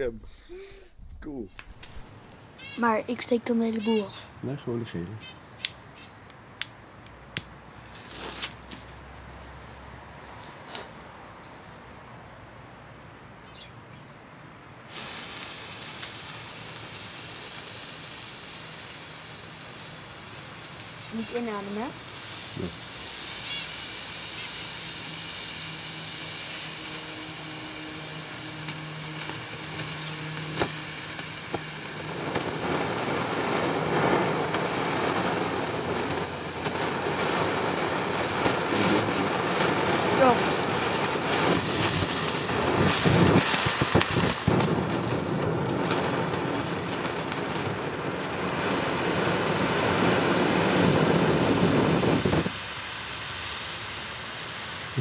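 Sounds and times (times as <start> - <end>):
firework crackling and sputtering: 0.0 - 9.2, 14.9 - 55.0
sharp firework pops: 1.1 - 2.4, 14.9 - 24.7, 28.5 - 52.6.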